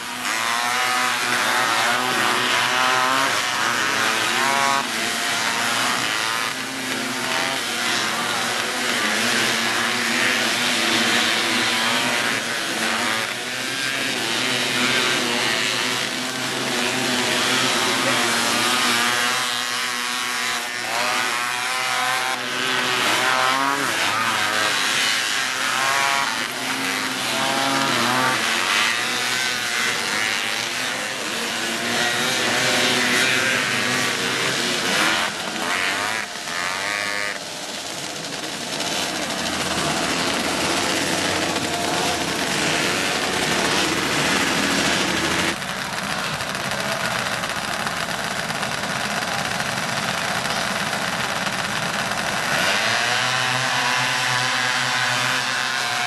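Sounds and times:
off-road buggy engines revving: 0.0 - 56.0.

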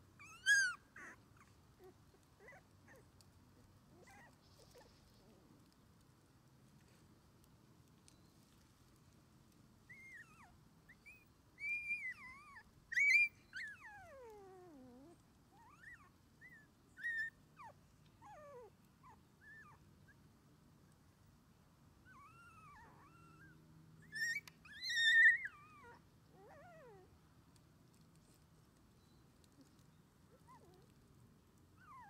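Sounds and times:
puppy whimpering and squealing: 0.2 - 3.0, 11.0 - 18.6, 22.1 - 27.1.

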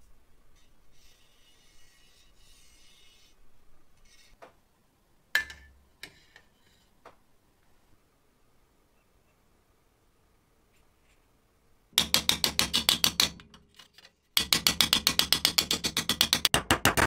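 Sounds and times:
faint rustle of handling: 10.6 - 11.5.

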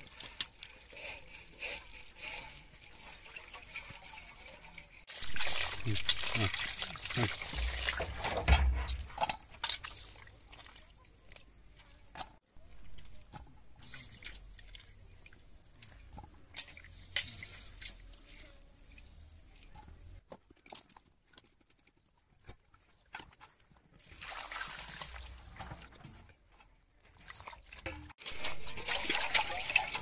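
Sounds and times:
water splashing and dripping: 2.7 - 11.9, 12.6 - 18.1, 23.9 - 26.1, 27.1 - 30.0.

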